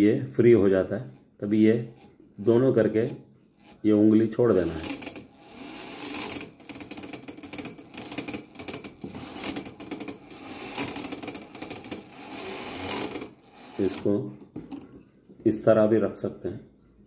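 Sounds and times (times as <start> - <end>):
clock wheels whirring and clattering: 3.6 - 15.0.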